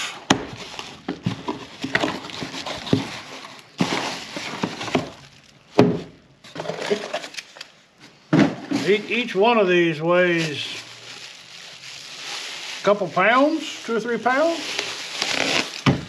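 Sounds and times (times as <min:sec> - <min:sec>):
cardboard rustling: 0:00.4 - 0:05.6, 0:10.2 - 0:16.0
bubble wrap crinkling: 0:00.5 - 0:05.8, 0:10.2 - 0:16.0.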